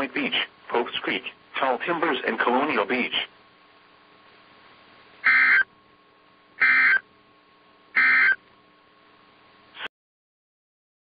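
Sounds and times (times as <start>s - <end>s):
faint steady radio hum: 0.0s - 5.8s
warbling digital data tones: 8.0s - 8.4s.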